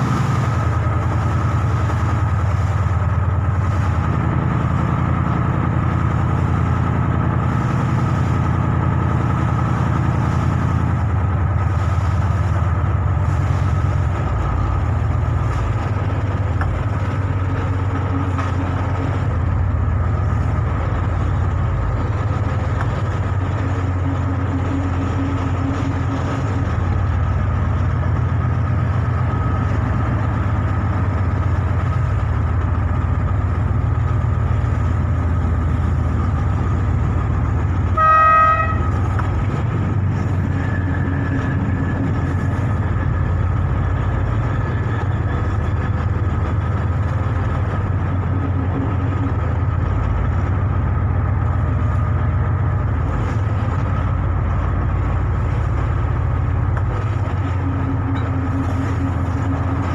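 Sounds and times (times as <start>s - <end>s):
boat engine droning: 0.0s - 59.9s
short horn toot: 37.9s - 39.0s.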